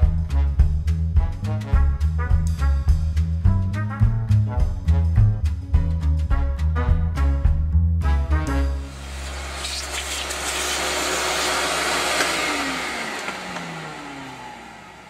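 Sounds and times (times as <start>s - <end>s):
swing music: 0.0s - 9.2s
vacuum cleaner running: 8.8s - 15.0s.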